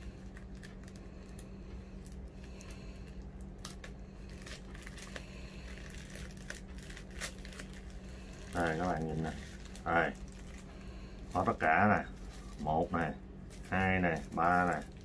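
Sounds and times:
plastic bag crinkling: 0:00.0 - 0:15.0
steady low hum: 0:00.0 - 0:15.0.

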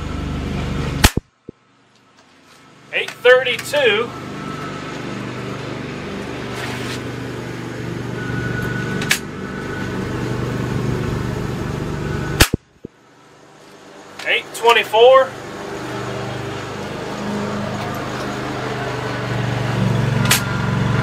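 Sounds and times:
air rifle shot: 0:01.0 - 0:01.3, 0:12.4 - 0:12.7.

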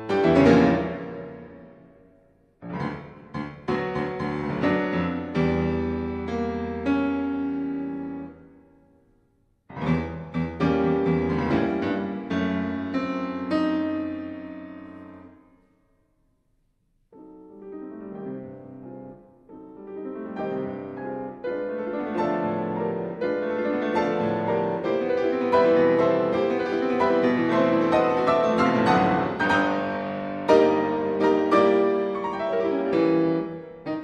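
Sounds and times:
piano music: 0:00.0 - 0:09.1, 0:09.7 - 0:15.7, 0:17.1 - 0:34.0.

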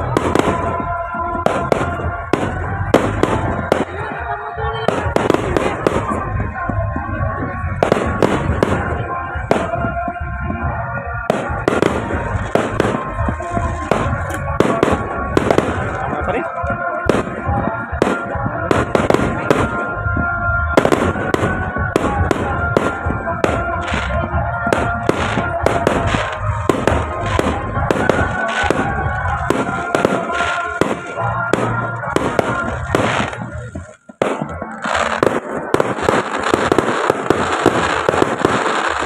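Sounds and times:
fireworks bangs: 0:00.0 - 0:39.0
music playing: 0:00.0 - 0:39.0
dense crackling hiss: 0:24.8 - 0:39.0.

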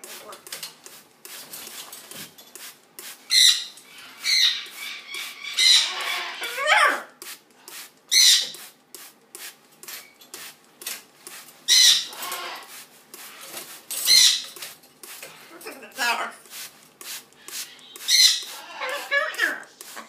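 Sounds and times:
macaw squawking: 0:03.3 - 0:07.0, 0:11.7 - 0:12.7, 0:17.5 - 0:19.6.

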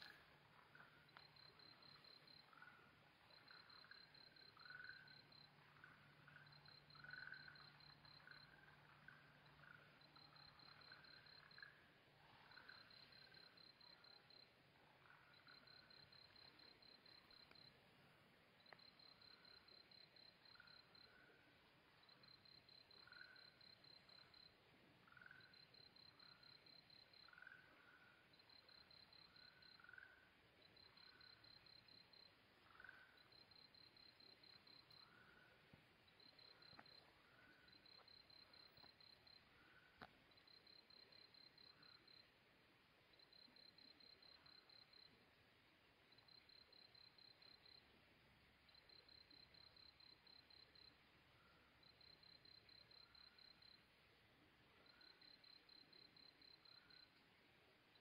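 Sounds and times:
frogs calling: 0:00.0 - 0:17.7, 0:18.6 - 0:21.5, 0:22.2 - 0:35.6
cricket chirping: 0:00.0 - 0:58.0.

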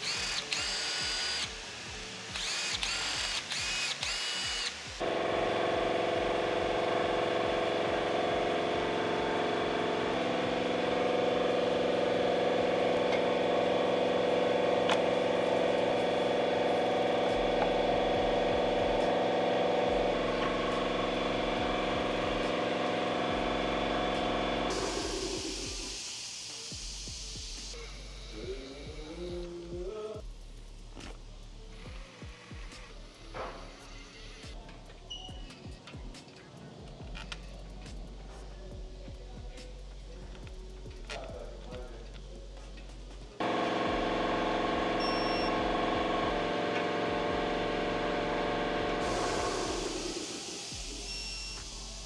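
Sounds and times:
cordless drill whining: 0:00.0 - 0:09.2, 0:43.4 - 0:52.0
background music with held chords: 0:00.0 - 0:52.0.

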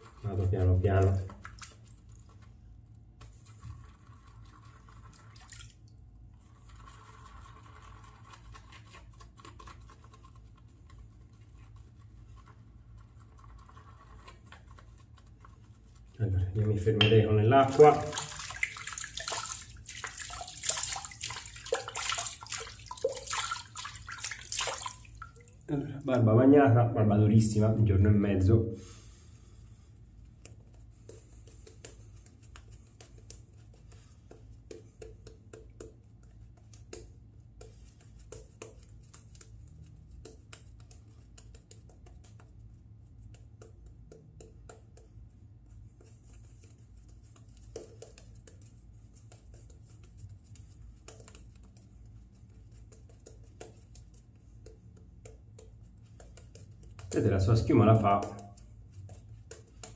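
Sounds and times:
shaving brush scrubbing stubble: 0:17.5 - 0:25.5.

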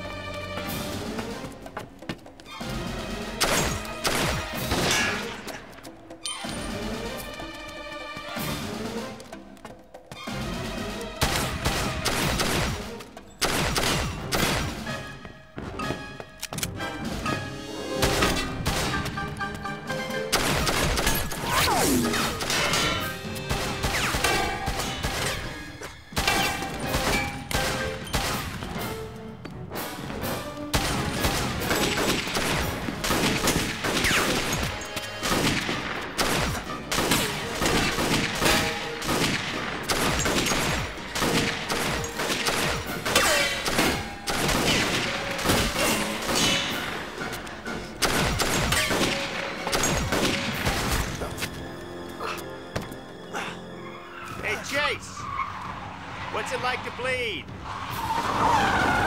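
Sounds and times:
action music score: 0:00.0 - 0:59.0
pistol shots: 0:03.4 - 0:05.4, 0:11.2 - 0:14.9, 0:20.3 - 0:28.6, 0:30.7 - 0:47.0, 0:48.0 - 0:51.2.

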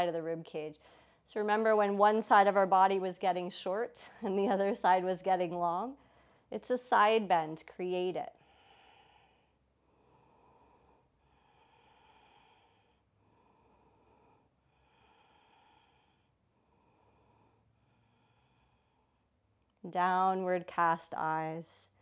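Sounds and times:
slow breathing: 0:00.8 - 0:01.3, 0:06.0 - 0:06.6, 0:08.3 - 0:19.4.

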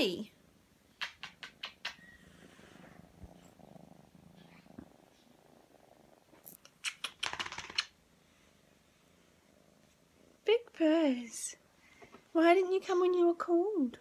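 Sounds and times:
kitten purring: 0:00.5 - 0:11.8
loud rustling and clicking: 0:06.9 - 0:07.9.

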